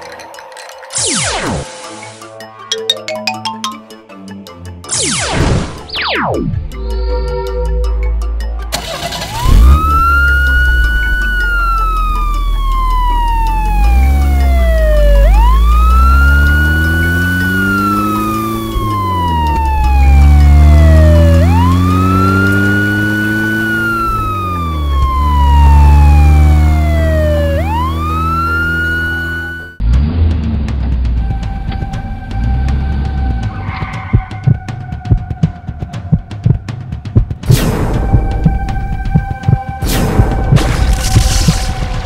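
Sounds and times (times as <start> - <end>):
police siren wailing: 8.8 - 29.8, 37.9 - 41.3.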